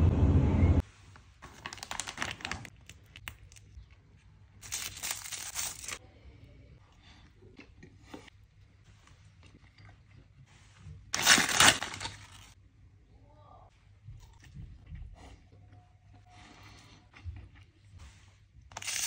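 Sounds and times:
plastic wrapper tearing and rustling: 1.4s - 3.6s, 4.6s - 6.0s, 11.2s - 12.6s, 18.7s - 19.0s.

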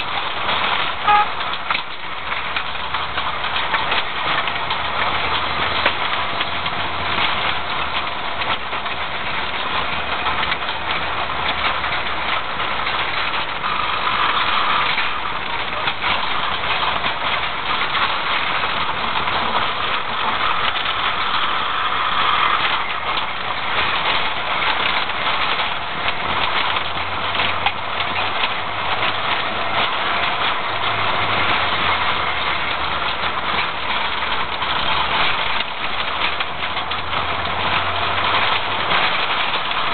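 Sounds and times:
knocks and rattles: 0.0s - 39.9s
tyre and road noise: 0.0s - 39.9s.

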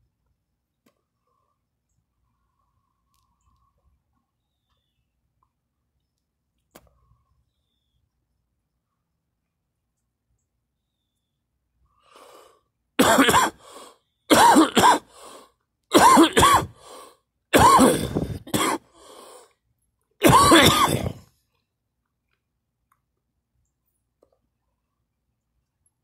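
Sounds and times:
in-breaths: 11.8s - 12.8s, 13.6s - 14.1s, 15.0s - 15.6s, 16.6s - 17.3s, 18.0s - 19.6s
person coughing hard: 13.0s - 13.7s, 14.3s - 15.2s, 15.9s - 16.8s, 17.5s - 18.9s, 20.2s - 21.2s.

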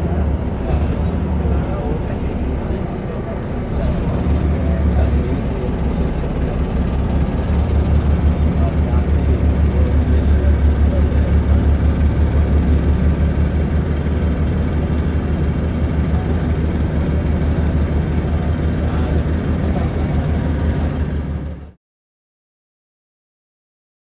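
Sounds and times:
vehicle engine rumbling: 0.0s - 21.8s.

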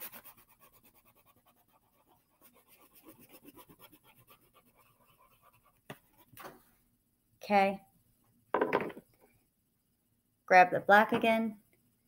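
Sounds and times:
crayon scribbling on paper: 0.0s - 6.3s.

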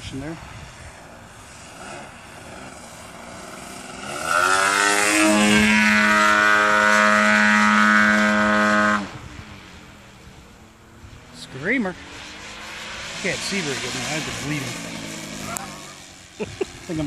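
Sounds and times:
model plane engine: 0.0s - 17.0s.

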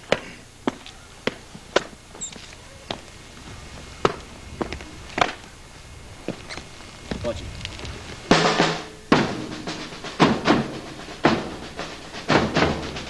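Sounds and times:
hard-soled footsteps on cobblestones: 0.0s - 8.6s.

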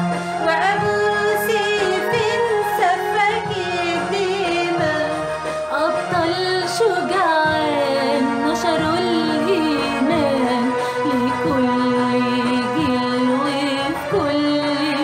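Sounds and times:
instrumental backing: 0.0s - 15.0s
women singing a hymn: 0.4s - 15.0s.

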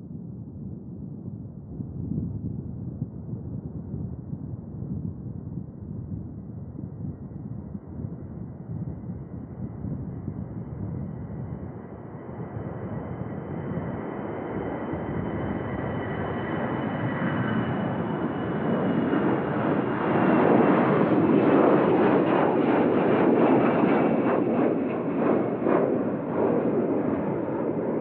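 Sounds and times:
jet engines at takeoff power: 10.6s - 28.0s.

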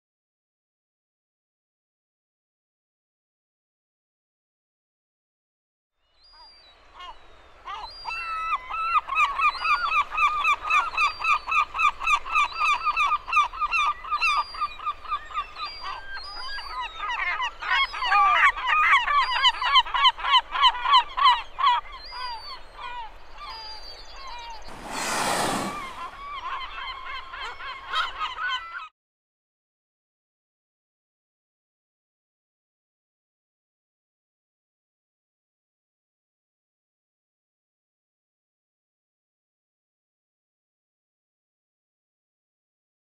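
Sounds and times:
gulls calling: 16.6s - 28.8s
whale blow rush of air: 24.7s - 26.4s.

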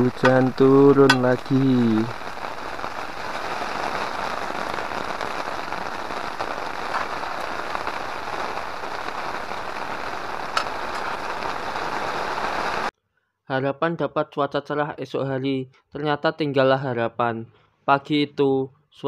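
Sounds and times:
sharp raindrop hits: 0.0s - 12.9s
steady rain pattering: 0.0s - 12.9s.

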